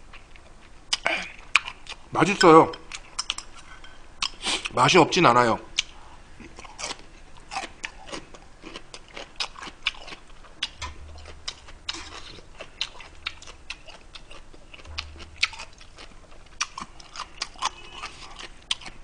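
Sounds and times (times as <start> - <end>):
chewing and wet smacks: 0.1 - 2.1, 2.8 - 4.7, 5.8 - 19.0.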